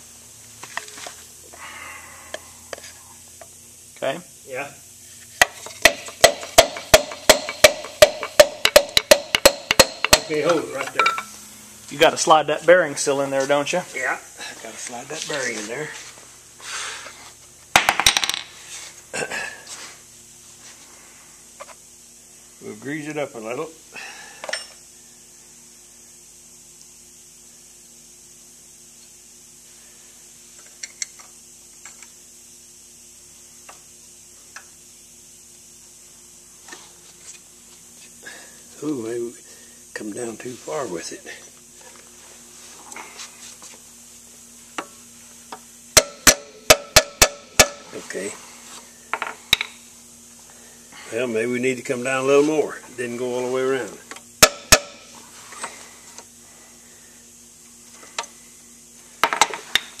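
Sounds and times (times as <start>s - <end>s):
hammer tapping on metal: 5.4s - 11.3s, 46.0s - 47.9s, 54.4s - 55.0s.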